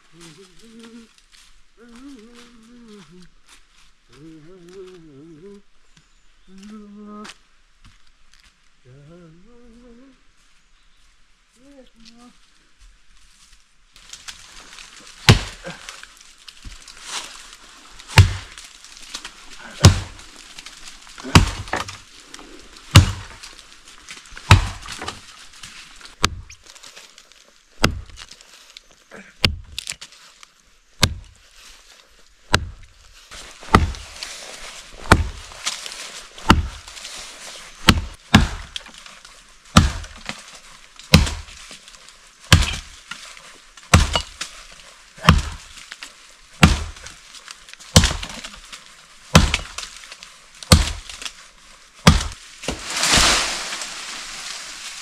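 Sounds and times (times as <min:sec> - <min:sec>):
blade chopping wood: 0:15.2 - 0:15.8, 0:18.1 - 0:18.6, 0:19.8 - 0:20.2, 0:21.2 - 0:22.0, 0:22.9 - 0:23.4, 0:24.4 - 0:25.2, 0:26.2 - 0:26.5, 0:27.8 - 0:28.2, 0:31.0 - 0:31.3, 0:32.5 - 0:32.8, 0:33.6 - 0:34.2, 0:35.0 - 0:35.8, 0:36.4 - 0:36.9, 0:37.8 - 0:39.0, 0:39.7 - 0:40.4, 0:41.1 - 0:41.6, 0:42.5 - 0:43.2, 0:43.8 - 0:44.5, 0:45.2 - 0:45.8, 0:46.6 - 0:47.2, 0:47.9 - 0:48.6, 0:49.3 - 0:49.9, 0:50.6 - 0:51.3, 0:52.0 - 0:53.8.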